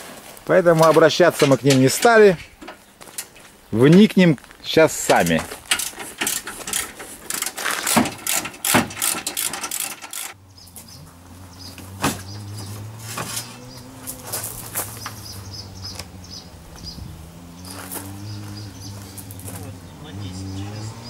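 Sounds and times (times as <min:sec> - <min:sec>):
metal tool clicks and clanks: 0:05.1 - 0:10.4.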